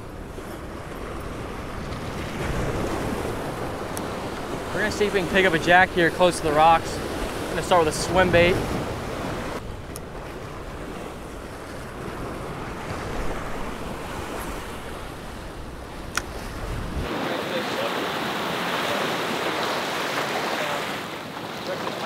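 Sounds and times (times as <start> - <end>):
surf breaking against rocks: 0.0 - 22.0
wind buffeting microphone: 0.0 - 22.0
sharp click: 16.1 - 16.3.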